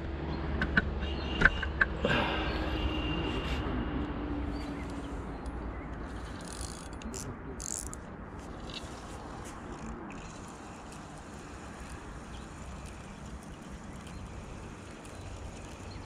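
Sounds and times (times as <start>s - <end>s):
faint outdoor background noise: 0.0s - 16.0s
fishing reel clicking: 6.0s - 8.0s, 8.6s - 16.0s.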